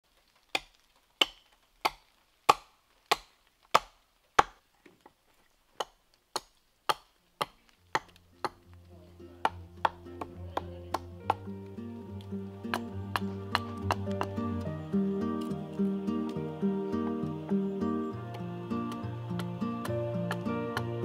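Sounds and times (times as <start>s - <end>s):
music with low sustained notes: 8.1s - 21.0s.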